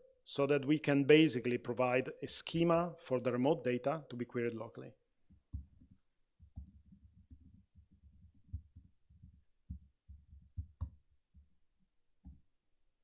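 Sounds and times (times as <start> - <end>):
typing on laptop keyboard: 5.3 - 11.5.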